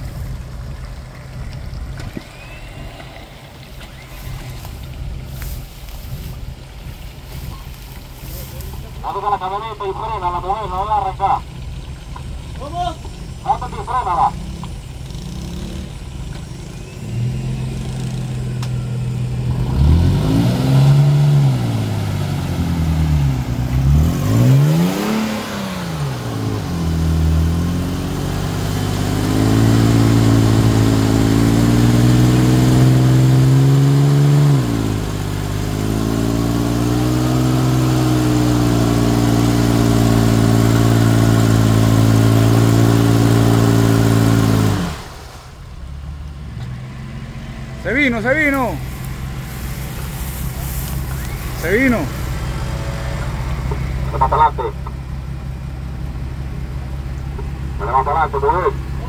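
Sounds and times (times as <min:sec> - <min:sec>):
wheels spinning in mud: 0:00.0 - 0:09.0, 0:48.4 - 0:54.1
engine revving hard: 0:13.5 - 0:16.1, 0:17.0 - 0:45.5, 0:46.8 - 0:54.7.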